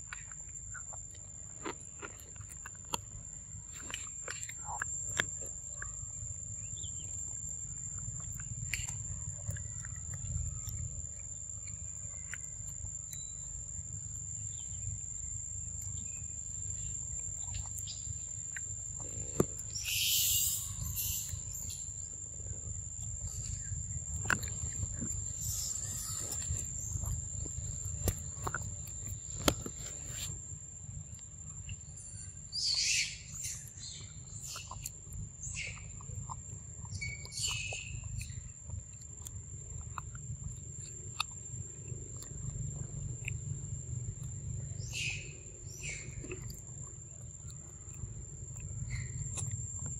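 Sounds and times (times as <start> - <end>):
monkey chewing wet fruit: 0.0 - 13.3, 15.8 - 30.4, 33.4 - 49.9
high insect drone: 3.2 - 40.8.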